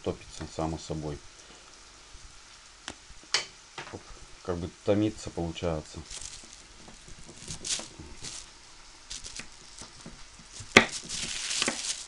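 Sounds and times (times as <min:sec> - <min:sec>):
plastic sheet rustling: 0:05.6 - 0:12.0.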